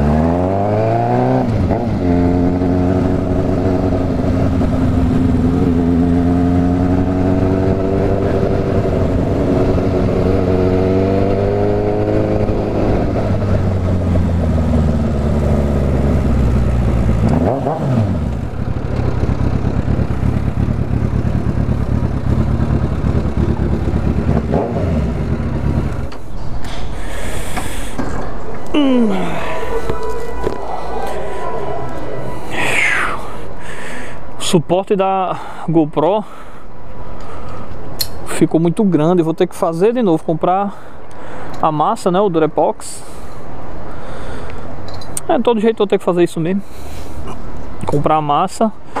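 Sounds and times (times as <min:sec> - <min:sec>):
motorcycle engine accelerating: 0:00.0 - 0:26.6
motorcycle throttle blips: 0:01.7 - 0:26.3.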